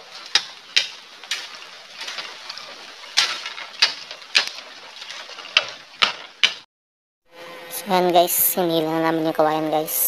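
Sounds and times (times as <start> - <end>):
blade chopping bamboo: 0.0 - 6.7.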